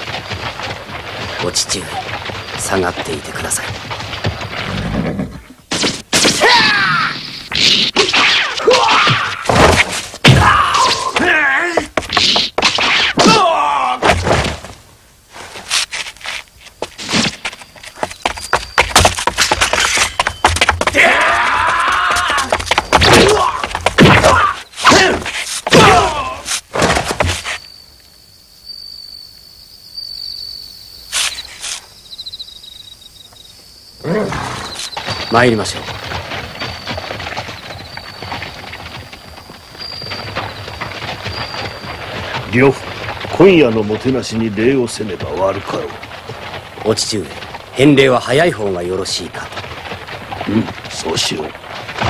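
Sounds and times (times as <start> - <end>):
men yelling and screaming: 13.2 - 14.0, 20.9 - 26.6
sword blows and thuds: 23.0 - 27.4.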